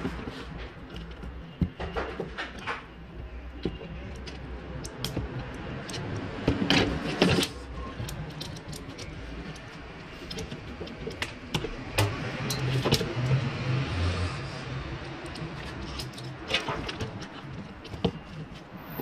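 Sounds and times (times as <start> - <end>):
metallic clicks and rattling: 3.6 - 13.4, 15.1 - 19.0.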